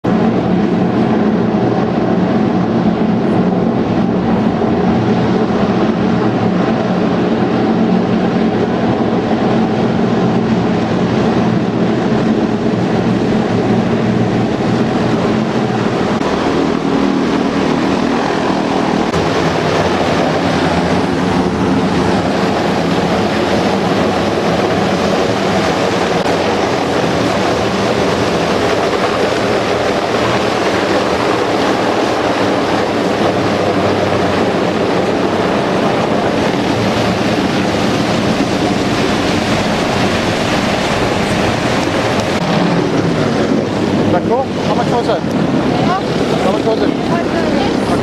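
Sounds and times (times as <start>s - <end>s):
hovercraft propellers and fans: 0.0s - 48.0s.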